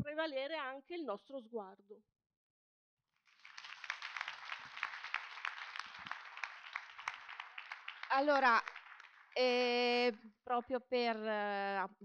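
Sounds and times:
audience clapping: 0:03.2 - 0:10.1.

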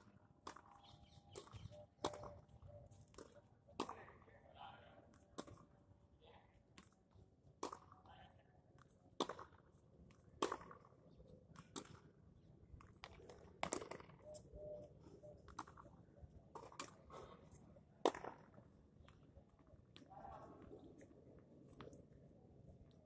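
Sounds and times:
tennis balls struck and bouncing: 0:00.1 - 0:02.5, 0:03.1 - 0:04.3, 0:05.1 - 0:05.7, 0:06.8 - 0:08.0, 0:08.8 - 0:12.2, 0:12.8 - 0:14.2, 0:15.4 - 0:17.3, 0:18.0 - 0:19.3.

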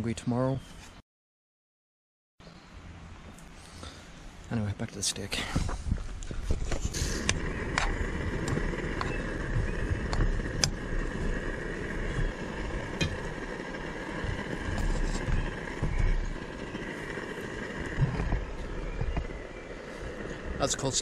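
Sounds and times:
wind rumble on microphone: 0:05.4 - 0:21.0.

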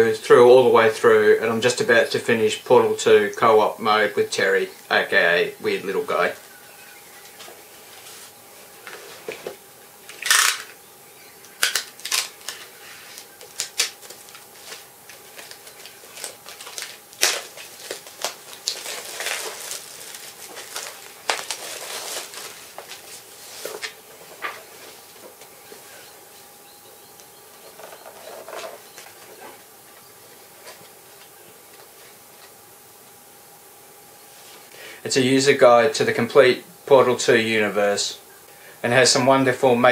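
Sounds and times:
book rustling and page turns: 0:07.2 - 0:10.2, 0:11.9 - 0:26.1.

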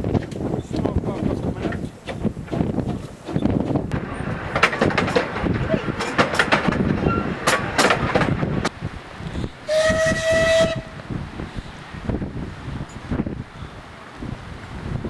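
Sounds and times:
railway coaches clattering past: 0:00.2 - 0:14.9
steam whistle blast: 0:09.7 - 0:11.0.

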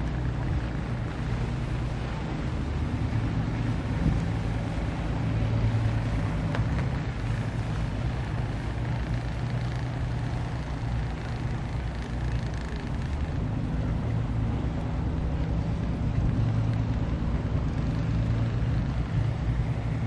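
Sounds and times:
boat engine drone: 0:00.0 - 0:20.0
rushing water and air: 0:00.0 - 0:20.0.

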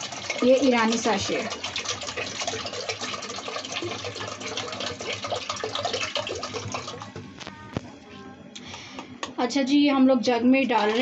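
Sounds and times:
tap water filling metal pot: 0:00.0 - 0:07.2, 0:10.7 - 0:11.0.

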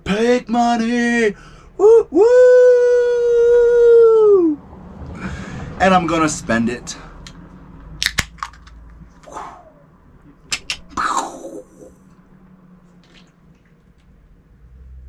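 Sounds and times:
drink can tab cracking open: 0:08.0 - 0:08.8.

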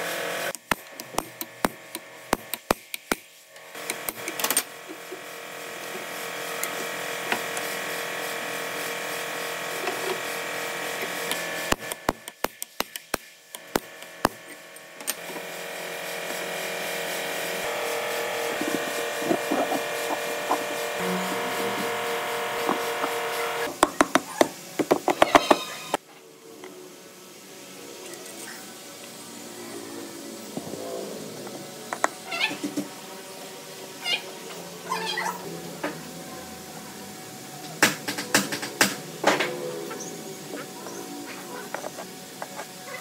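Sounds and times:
small machine motor running: 0:00.0 - 0:26.0, 0:26.7 - 0:43.0.

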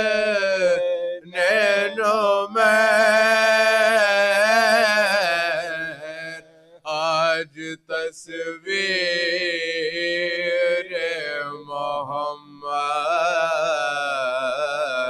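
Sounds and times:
men chanting: 0:00.0 - 0:11.6.

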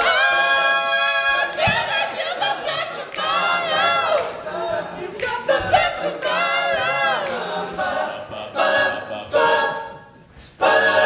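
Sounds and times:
men singing a cappella: 0:00.0 - 0:11.0.

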